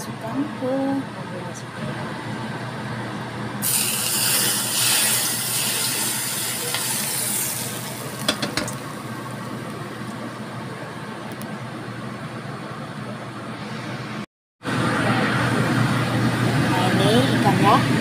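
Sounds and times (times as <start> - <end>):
hot oil sizzling: 3.6 - 9.7.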